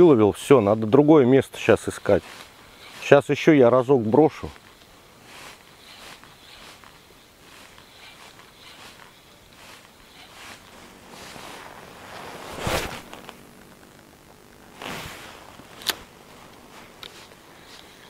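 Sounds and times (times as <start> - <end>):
light rustling: 1.6 - 3.3, 4.3 - 13.8, 14.8 - 18.0.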